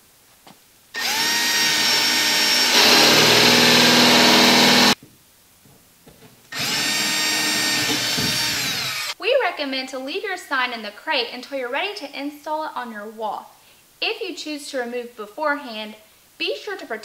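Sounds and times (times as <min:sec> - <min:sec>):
cordless drill boring into wall: 0:01.0 - 0:05.0, 0:06.5 - 0:09.2.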